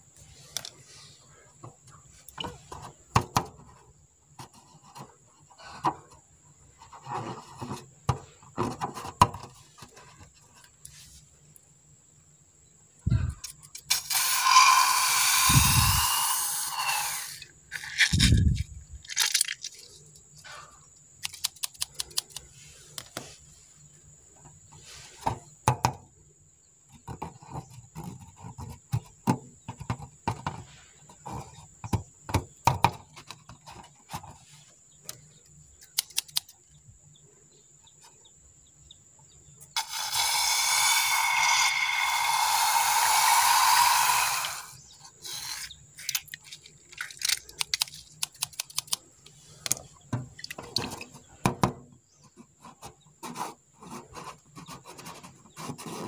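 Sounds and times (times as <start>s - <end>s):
loud rushing hiss: 13.9s - 17.5s, 39.8s - 45.6s.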